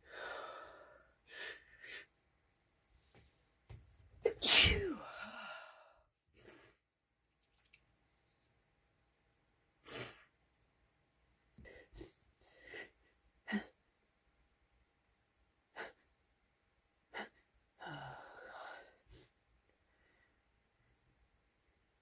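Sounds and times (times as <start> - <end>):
breathy sneeze buildup: 4.2 - 5.4
person sneezing: 4.2 - 5.4.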